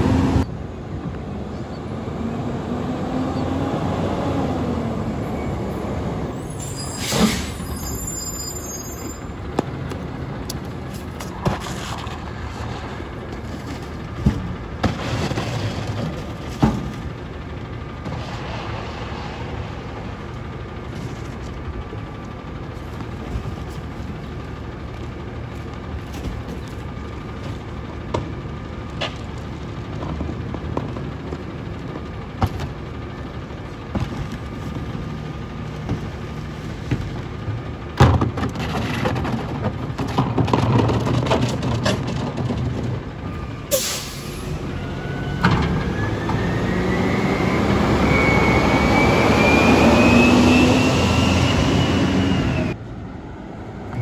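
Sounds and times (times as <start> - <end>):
engine rising whine: 0.0 - 36.9, 43.1 - 54.0
diesel engine idling: 4.6 - 40.8.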